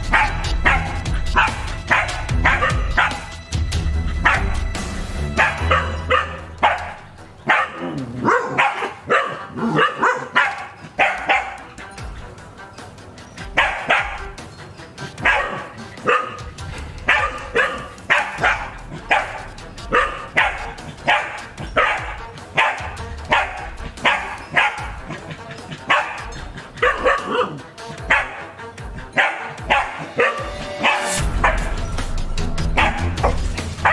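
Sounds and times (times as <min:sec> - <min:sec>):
dogs barking: 0:00.0 - 0:03.4, 0:04.0 - 0:12.5, 0:13.2 - 0:33.9
background music: 0:00.0 - 0:33.9.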